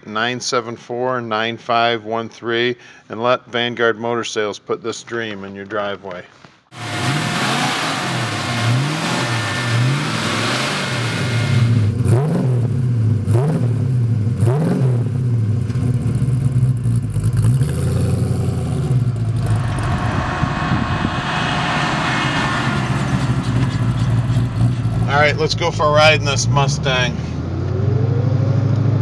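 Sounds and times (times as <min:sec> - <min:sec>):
car driving past: 0:06.8 - 0:11.9, 0:18.0 - 0:28.7
car engine idling: 0:06.8 - 0:11.9, 0:19.0 - 0:26.7.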